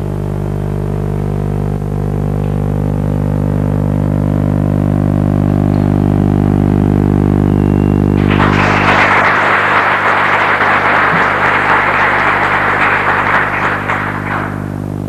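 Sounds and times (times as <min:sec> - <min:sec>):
audience applauding: 0:08.2 - 0:14.9.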